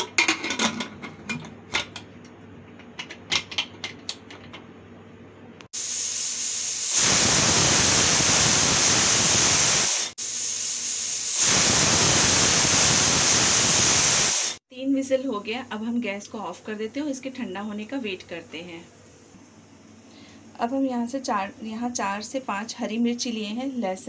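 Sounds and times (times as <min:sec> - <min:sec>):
pressure cooker whistle hissing: 0:05.8 - 0:14.6.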